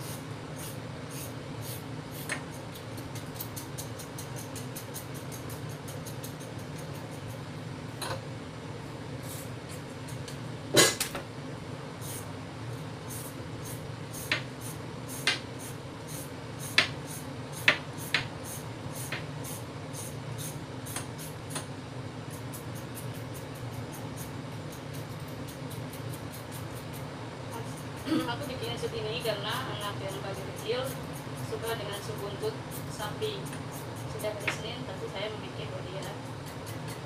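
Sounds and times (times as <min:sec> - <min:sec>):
steady low hum: 0:00.0 - 0:37.0
peeler scraping carrot: 0:22.3 - 0:27.0, 0:27.6 - 0:34.6.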